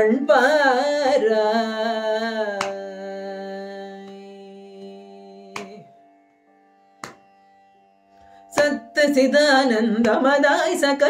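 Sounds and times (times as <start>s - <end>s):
woman singing: 0.0s - 5.9s, 8.5s - 11.0s
sharp tap: 2.6s - 2.8s, 5.6s - 5.8s, 7.0s - 7.3s.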